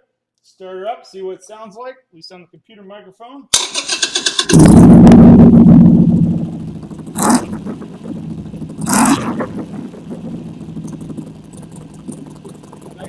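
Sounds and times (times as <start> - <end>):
motorcycle engine idling: 3.6 - 13.0
throttle blips: 4.6 - 13.0.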